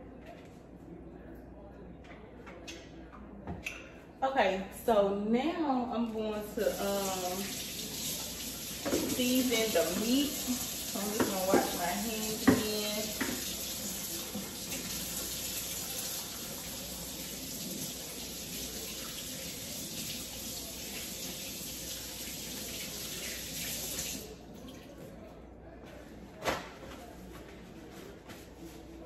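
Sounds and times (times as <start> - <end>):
tap running into a metal sink: 8.7 - 9.2, 12.4 - 13.6.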